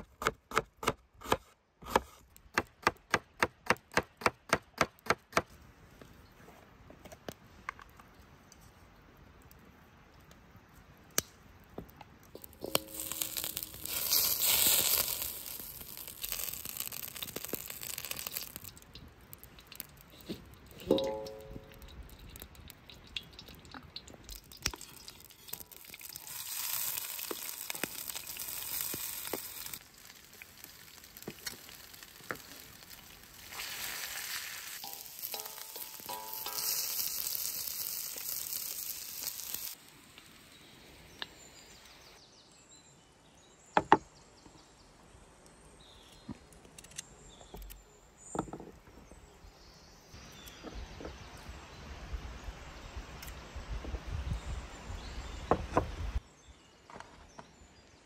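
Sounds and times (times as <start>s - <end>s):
butter and oil sizzling in a wok: 12.4s - 40.6s.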